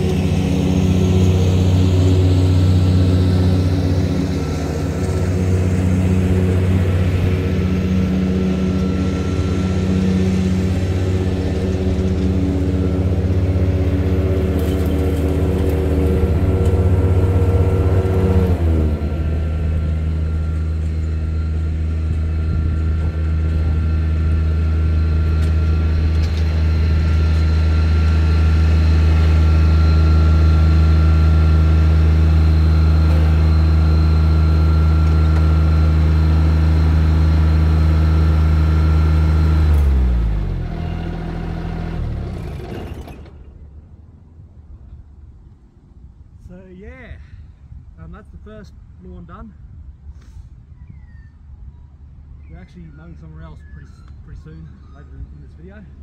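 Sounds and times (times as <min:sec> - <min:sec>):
mower engine running: 0:00.0 - 0:44.2.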